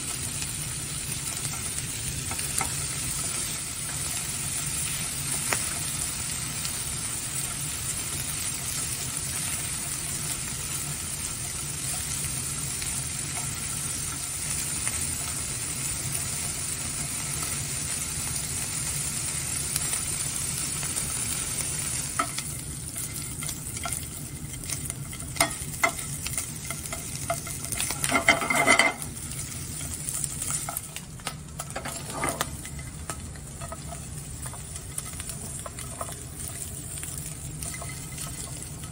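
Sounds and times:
sausage sizzling in a skillet: 0:00.0 - 0:38.9
metal tongs clicking and scraping: 0:22.2 - 0:38.9.

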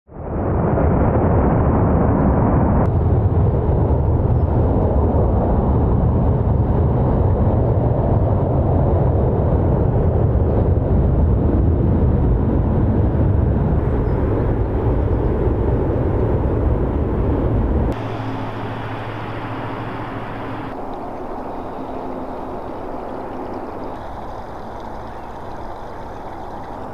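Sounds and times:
low jet engine rumble: 0:00.1 - 0:26.9
steady hum: 0:16.5 - 0:26.9.

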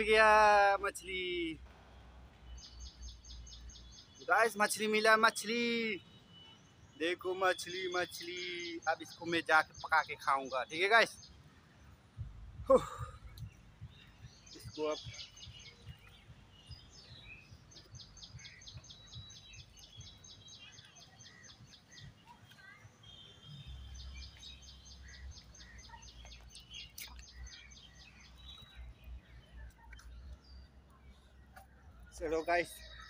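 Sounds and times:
short bird chirps: 0:13.2 - 0:30.7.

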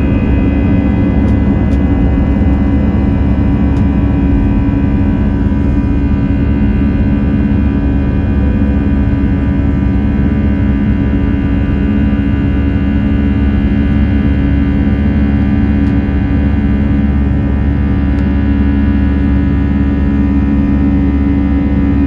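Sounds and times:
deep rumble: 0:00.0 - 0:22.0
jet engines rushing drone: 0:00.0 - 0:22.0
steady high engine tones: 0:00.0 - 0:22.0.

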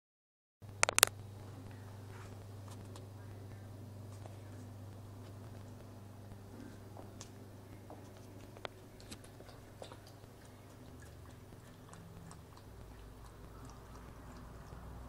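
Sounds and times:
low steady hum: 0:00.6 - 0:15.0
puppy lapping water: 0:08.7 - 0:15.0.

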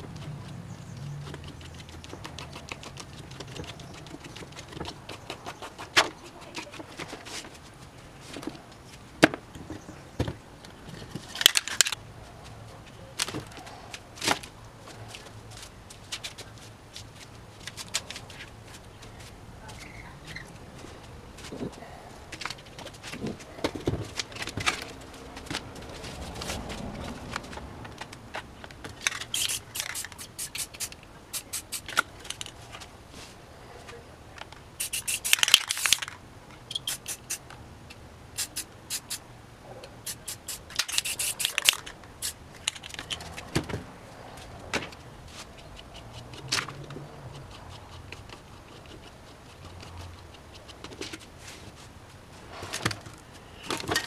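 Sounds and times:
sharp clicks and rattles of cans: 0:11.1 - 0:12.0, 0:28.8 - 0:32.6, 0:34.4 - 0:37.4, 0:40.1 - 0:43.7
aerosol spray paint hissing: 0:29.3 - 0:31.9, 0:34.8 - 0:35.9, 0:36.7 - 0:37.4, 0:38.4 - 0:39.2, 0:40.0 - 0:42.4.

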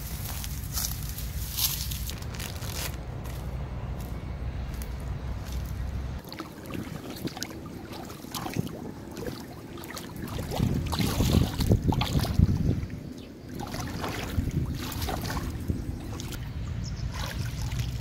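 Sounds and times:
twigs rustling and snapping: 0:00.2 - 0:03.5
water splashing: 0:06.2 - 0:16.4, 0:17.0 - 0:18.0.

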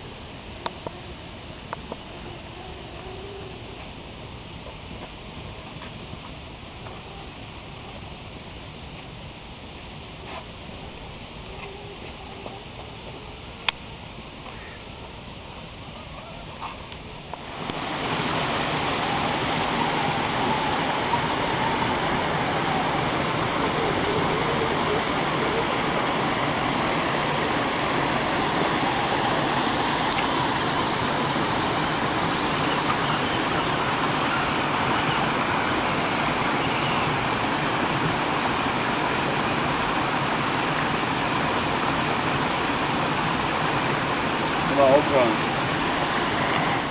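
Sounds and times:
stream rushing over stones: 0:16.8 - 0:46.9.

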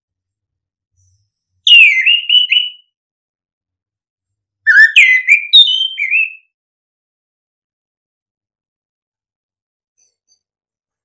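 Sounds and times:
bird singing slurred whistles: 0:01.7 - 0:02.9, 0:04.7 - 0:06.5.

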